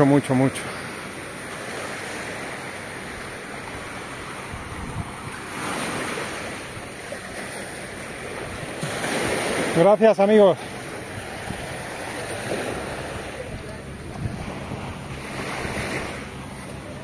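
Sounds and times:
surf washing onto sand: 0.0s - 17.0s
wind on microphone: 4.4s - 6.9s, 12.5s - 16.4s.

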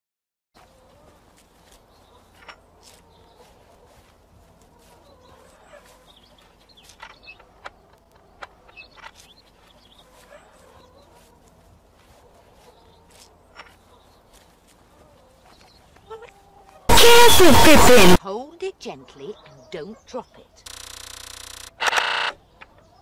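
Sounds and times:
bird calls: 4.8s - 11.3s.

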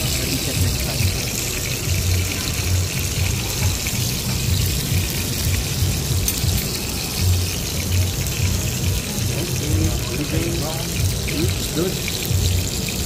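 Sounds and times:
music with low beat: 0.0s - 10.2s, 11.0s - 13.0s
steak sizzling: 0.0s - 13.0s.

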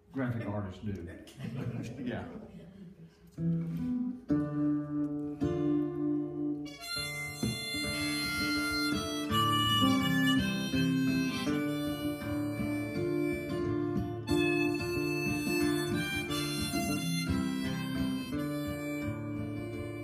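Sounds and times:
acoustic guitar picking: 3.3s - 20.0s
harmonica playing: 6.0s - 20.0s.

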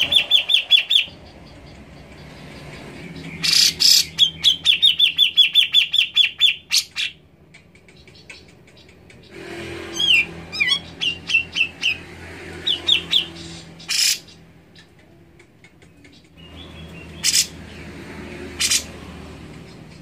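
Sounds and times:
bird whistled song: 0.0s - 1.7s, 3.0s - 7.2s
harsh rasping bird calls: 0.0s - 20.0s.

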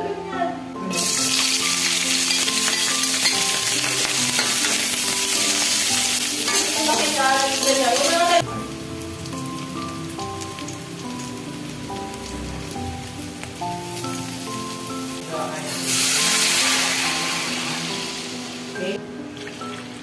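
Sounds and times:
vegetables sizzling in hot oil: 0.9s - 20.0s
tongs stirring in a wok: 1.9s - 8.4s.

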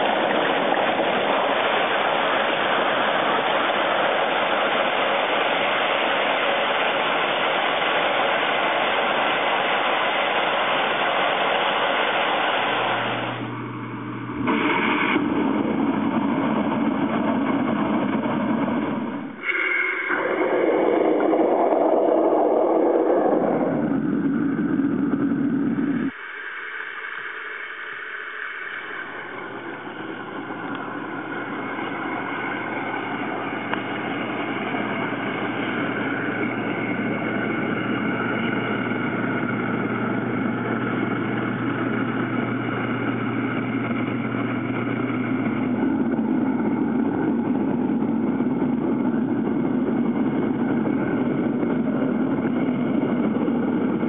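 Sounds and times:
low motor hum: 0.0s - 19.5s, 20.1s - 26.2s, 28.2s - 54.0s
water churning and bubbling: 19.3s - 24.4s.

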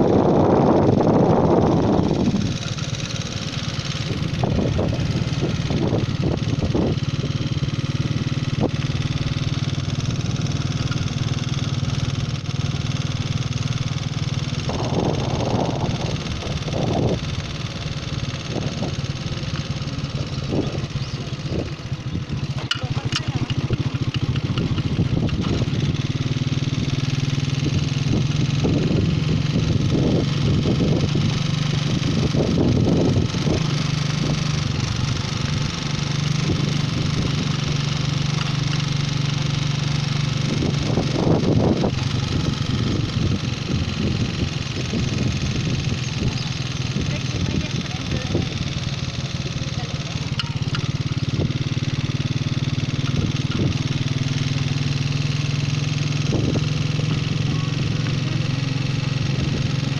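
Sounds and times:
wind rushing over microphone: 0.0s - 2.6s, 4.0s - 7.2s, 14.5s - 17.5s, 27.5s - 35.0s, 40.4s - 48.6s, 56.2s - 56.8s
motorcycle engine running: 0.0s - 59.9s.

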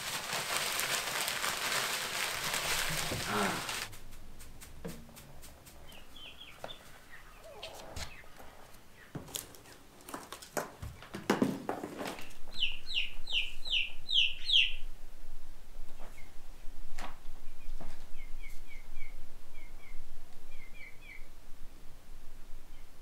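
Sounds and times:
rustles: 0.0s - 23.0s
chicks peeping: 5.3s - 9.9s, 12.4s - 14.9s, 17.3s - 21.3s.

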